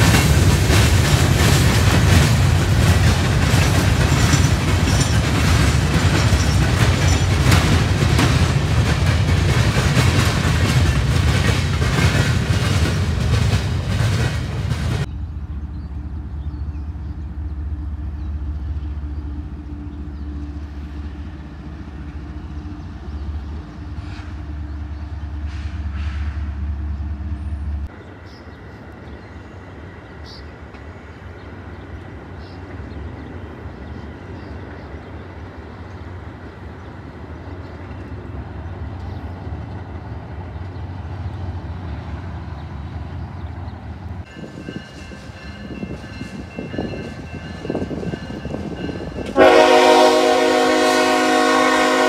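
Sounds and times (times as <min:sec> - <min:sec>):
train wheels clicking over rail joints: 0:00.0 - 0:15.1
distant train rumble: 0:00.0 - 0:52.0.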